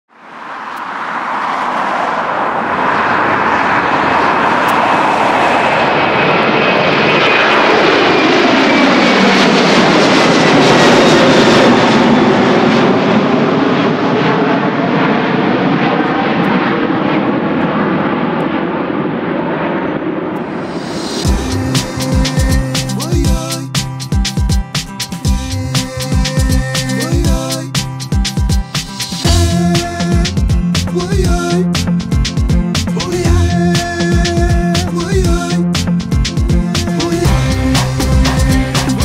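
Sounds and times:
jet airliner engine noise: 0.1 - 29.3
high whine sliding down: 20.2 - 30.9, 35.7 - 39.0.

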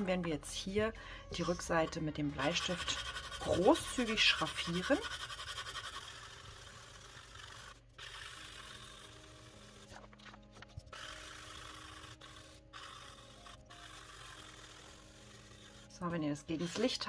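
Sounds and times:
pencil scratching on paper: 1.4 - 17.0.

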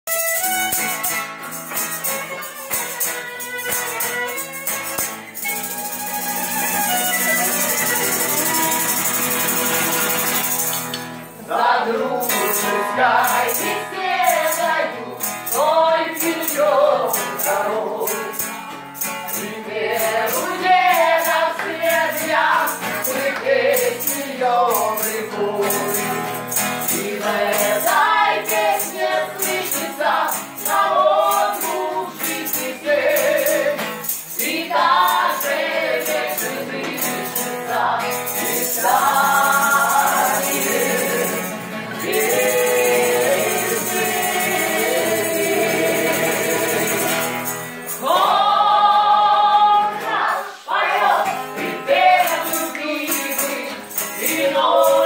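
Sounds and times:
guitar accompaniment: 0.0 - 55.0
rhythmic percussion: 0.0 - 55.0
women singing together: 11.4 - 18.5, 19.3 - 55.0.

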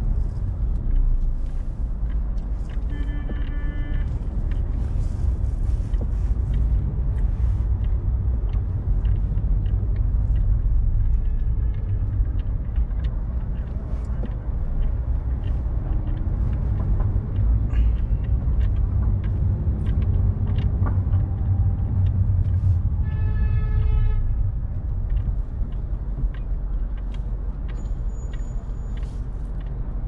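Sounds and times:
car driving rumble: 0.0 - 30.0
car horn: 2.9 - 4.1.

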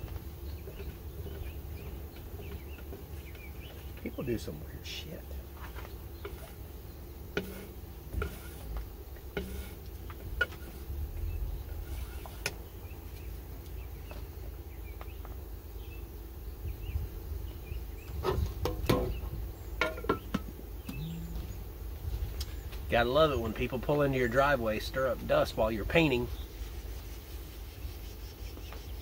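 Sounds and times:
faint chirping: 0.0 - 29.0
wind rumble on microphone: 10.2 - 13.0, 16.6 - 19.6, 20.8 - 23.7.

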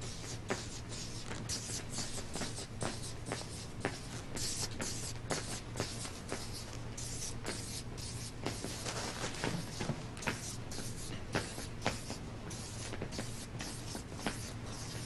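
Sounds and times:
marker scratching on paper: 0.0 - 15.0
marker tip tapping paper: 9.4 - 14.8.

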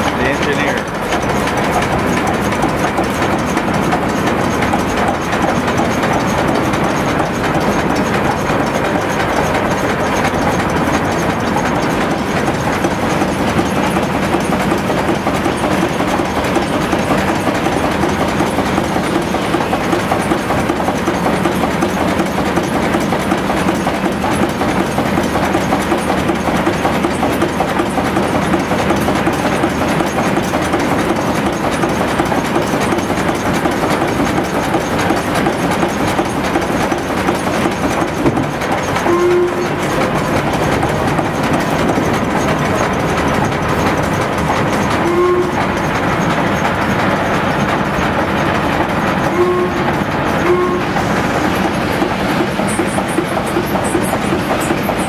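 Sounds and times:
steam engine running: 0.0 - 55.0.

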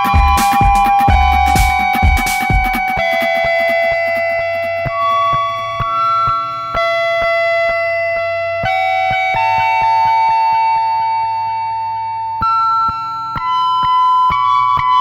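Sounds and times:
clicking electronic beat: 0.0 - 7.9
synthesizer chords: 0.0 - 10.0.

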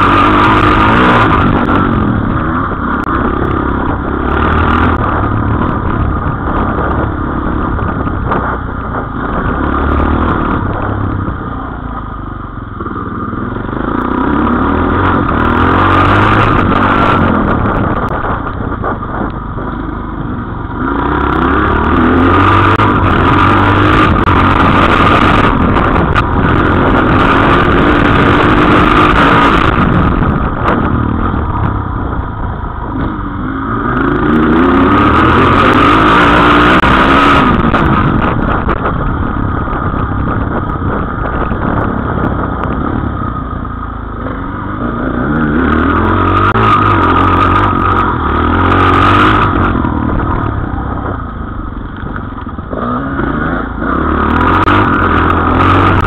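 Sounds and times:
dirt bike engine revving: 0.0 - 11.8, 12.8 - 56.0.

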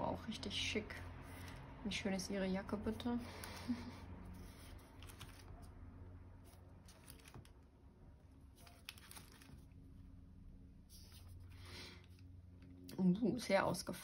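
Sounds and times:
low steady hum: 0.0 - 14.0
paper stickers rustling: 3.3 - 5.8, 6.4 - 7.7, 8.5 - 9.8.

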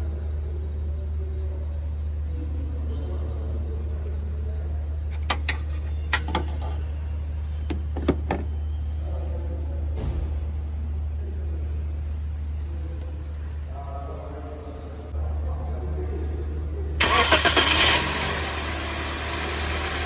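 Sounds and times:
car engine idling: 17.0 - 20.0.

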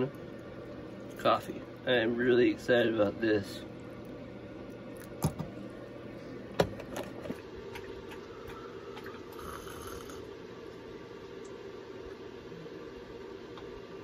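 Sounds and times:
faint steady hum: 0.0 - 14.0
person sipping: 8.4 - 10.3.

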